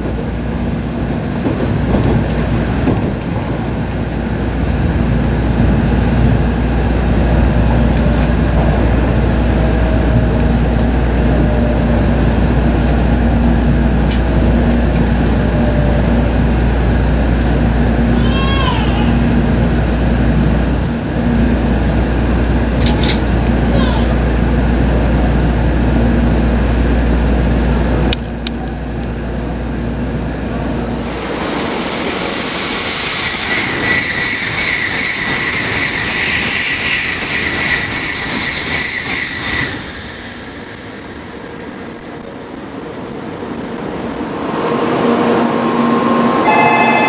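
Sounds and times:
high train whine: 0:00.0 - 0:47.0
low rumble inside train car: 0:00.0 - 0:47.0
train passing with rushing hiss: 0:29.2 - 0:47.0.

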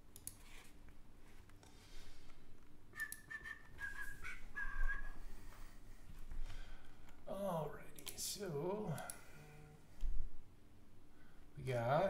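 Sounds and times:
person whistling short notes: 0:03.0 - 0:05.2.

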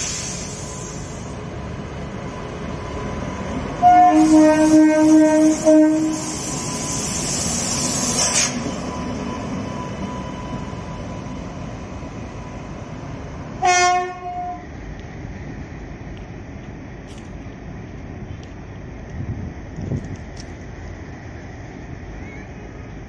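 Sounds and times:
short hiss: 0:00.0 - 0:01.3
locomotive running noise: 0:00.0 - 0:23.0
locomotive horn blast: 0:03.8 - 0:06.4, 0:13.6 - 0:14.7.

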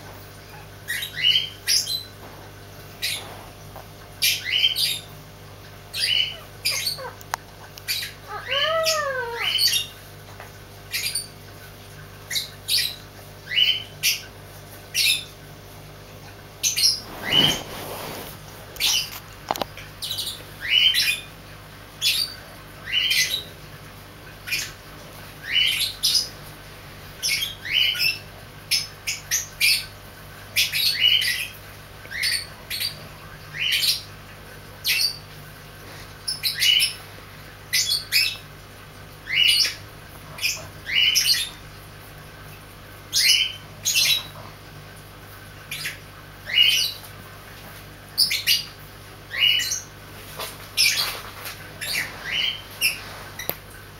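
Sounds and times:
puppy yipping: 0:06.1 - 0:07.2.

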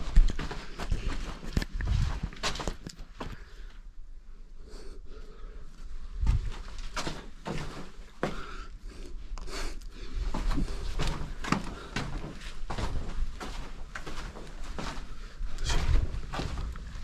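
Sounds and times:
footsteps and scuffs on stone: 0:00.0 - 0:03.4.

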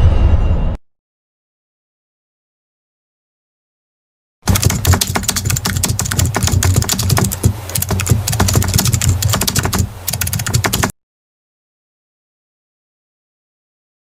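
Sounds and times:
rapid keyboard typing: 0:04.5 - 0:10.9.

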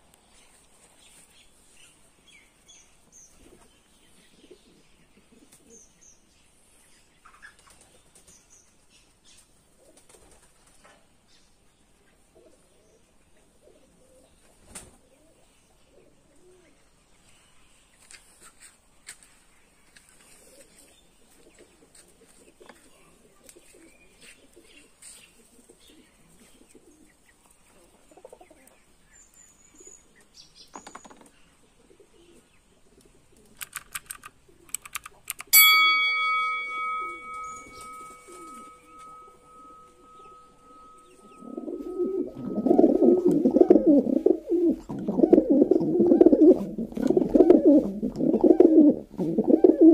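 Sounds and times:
pigeons cooing: 0:13.5 - 0:14.4, 0:31.7 - 0:33.6, 0:36.7 - 0:49.9
faint clicks: 0:33.0 - 0:35.5
sharp ding: 0:35.5 - 0:43.5.

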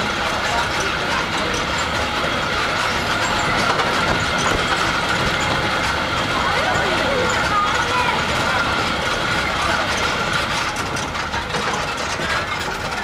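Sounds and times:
tram wheels rumbling: 0:00.0 - 0:13.0
tram whine: 0:00.0 - 0:13.0.

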